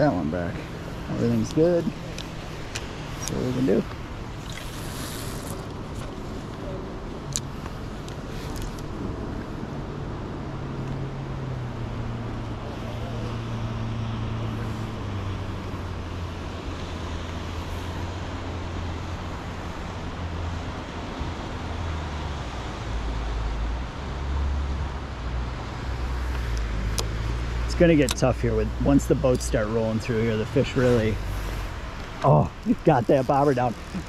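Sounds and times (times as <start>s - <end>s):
steady rushing noise: 0.0s - 10.4s, 25.3s - 34.0s
boat motor droning: 0.0s - 21.6s, 25.8s - 34.0s.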